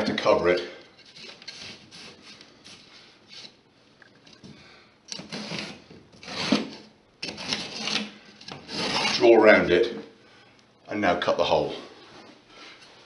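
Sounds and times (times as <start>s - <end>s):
pencil scratching on drywall: 1.0s - 3.6s, 5.2s - 9.3s.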